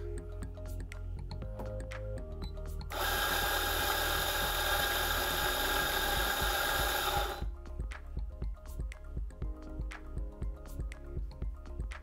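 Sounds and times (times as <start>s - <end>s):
coffee grinder grinding beans: 2.9s - 7.5s.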